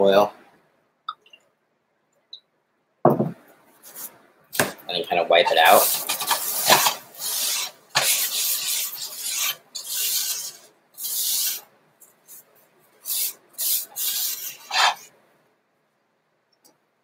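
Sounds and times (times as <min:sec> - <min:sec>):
paper towel wiping skillet: 0:05.3 - 0:11.6, 0:12.3 - 0:15.1.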